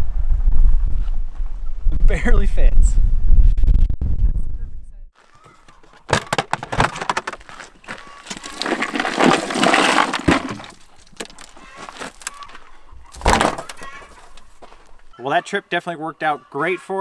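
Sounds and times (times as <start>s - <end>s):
crushed ice crunching and clinking: 6.1s - 12.6s.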